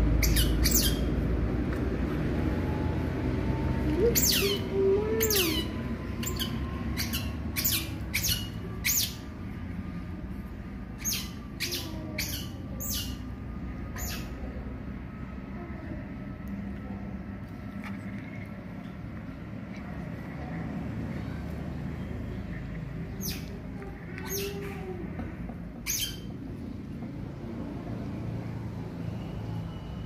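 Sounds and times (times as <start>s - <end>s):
young otter chirping: 0.2s - 1.1s, 4.0s - 9.3s, 11.0s - 13.3s, 13.9s - 14.4s, 23.1s - 23.6s, 25.8s - 26.4s.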